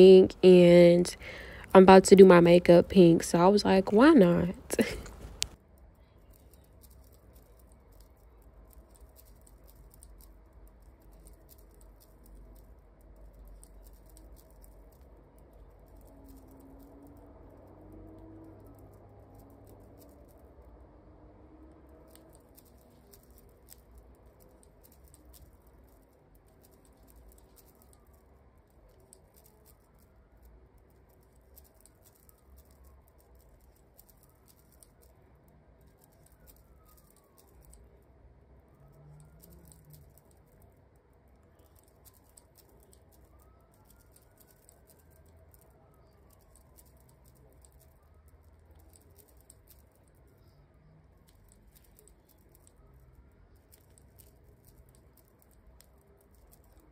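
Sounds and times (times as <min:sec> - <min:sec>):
crochet hook clicking: 0:05.0 - 0:05.6.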